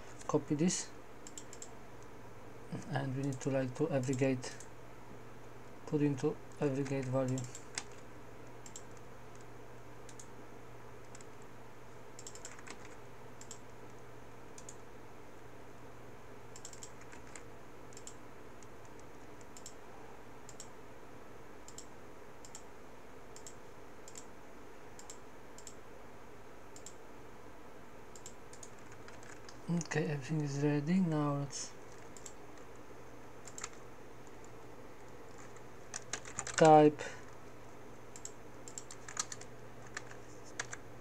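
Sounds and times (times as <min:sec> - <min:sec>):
mouse and keyboard clicks: 0:12.2 - 0:13.6, 0:33.4 - 0:33.8, 0:38.2 - 0:40.8.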